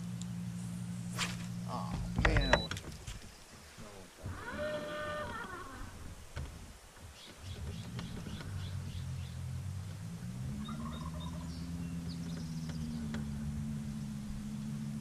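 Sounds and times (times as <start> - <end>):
boat motor humming: 0.0 - 15.0
faint bird chirps: 10.6 - 14.2.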